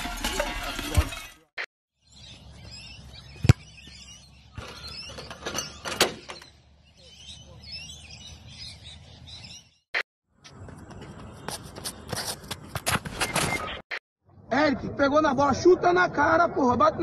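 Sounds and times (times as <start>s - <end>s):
birds chirping: 2.0s - 12.1s
football kicked with thump: 3.4s - 3.7s.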